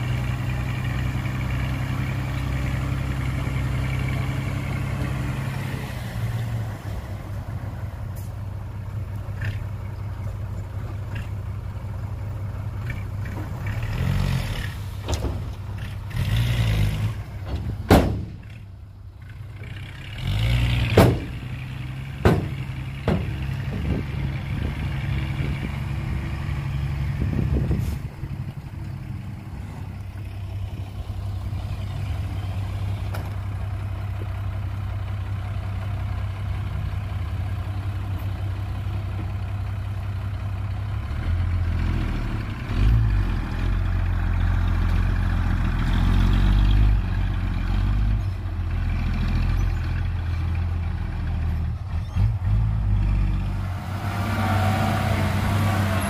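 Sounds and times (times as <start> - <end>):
diesel truck engine running: 0.0 - 56.0.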